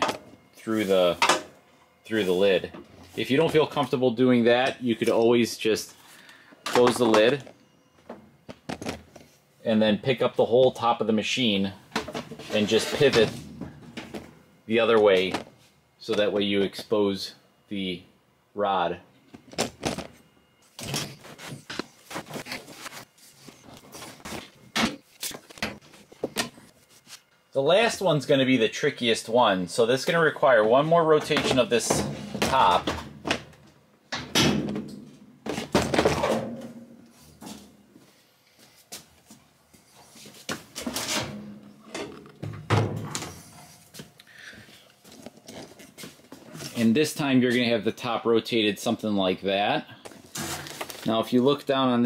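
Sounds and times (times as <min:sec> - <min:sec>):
panel scraping: 0:12.3 - 0:14.2.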